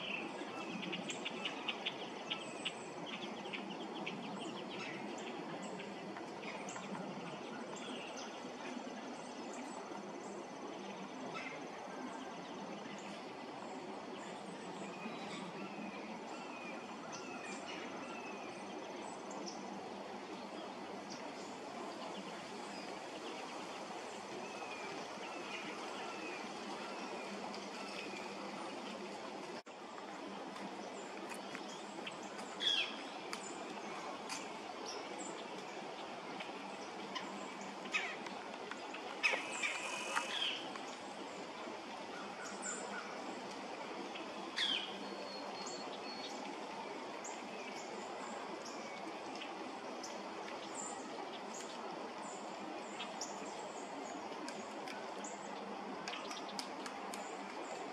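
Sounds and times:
steady background hiss: 0.0 - 57.9
distant woodpecker call: 39.2 - 40.7.

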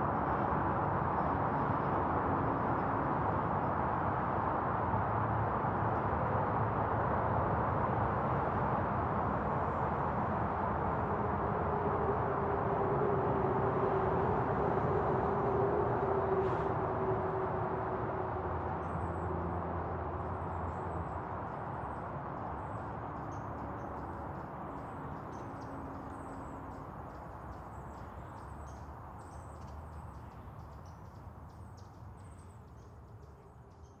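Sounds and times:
distant traffic rumble: 0.0 - 34.0
small birds chirping: 22.5 - 34.0.

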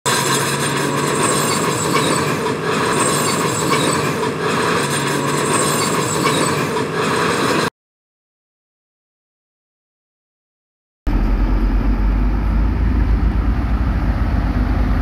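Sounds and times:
diesel engine running under load: 0.1 - 7.7, 11.1 - 15.0
steel tracks clanking and squealing: 0.1 - 7.7.

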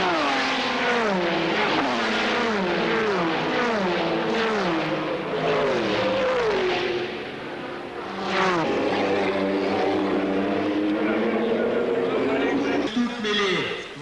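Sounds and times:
race cars passing at speed: 0.0 - 14.0.

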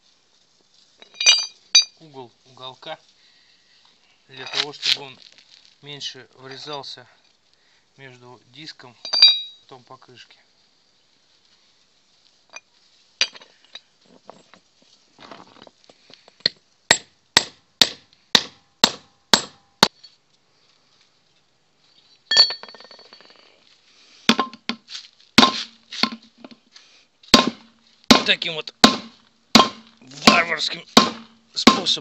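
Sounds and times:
hammer striking steel: 16.9 - 20.0, 25.4 - 26.2, 27.4 - 32.0
sledgehammer blows on steel rim: 24.3 - 26.2, 27.3 - 32.0.

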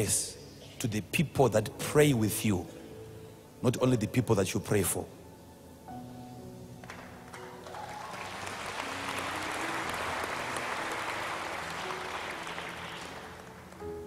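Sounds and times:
soft background music: 0.0 - 14.0
crowd applauding: 6.8 - 14.0.

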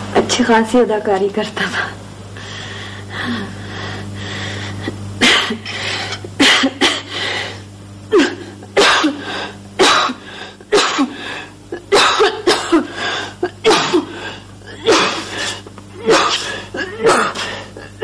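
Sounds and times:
man coughing: 8.1 - 11.2, 11.8 - 18.0.

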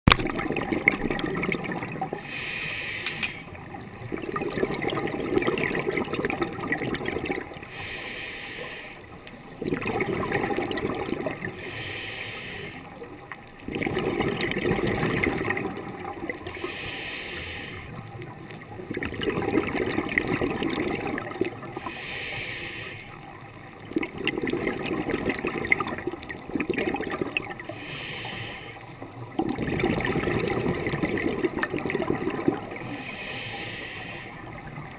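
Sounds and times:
exhaled bubbles rushing: 0.1 - 2.3, 3.5 - 7.7, 9.4 - 11.6, 13.0 - 16.7, 18.0 - 21.9, 23.3 - 27.8, 29.0 - 33.0
regulator hiss on inhale: 2.2 - 3.5, 7.6 - 9.2, 11.5 - 13.1, 16.5 - 18.0, 21.8 - 23.3, 27.6 - 29.1, 32.8 - 34.6.

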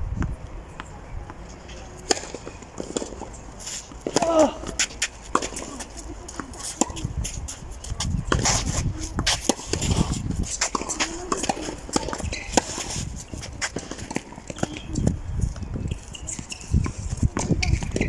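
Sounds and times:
racket hitting tennis ball: 0.8 - 15.0
shoes scuffing on clay: 1.5 - 14.9
ball bouncing: 4.0 - 7.1, 8.0 - 15.2, 15.8 - 18.0.

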